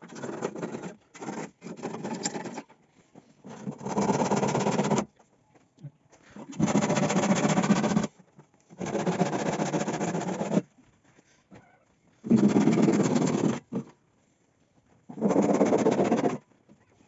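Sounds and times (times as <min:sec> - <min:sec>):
handsaw cutting wood: 0:00.0 - 0:02.6, 0:03.6 - 0:05.1, 0:06.6 - 0:08.1, 0:08.8 - 0:10.7, 0:12.2 - 0:13.9, 0:15.1 - 0:16.4.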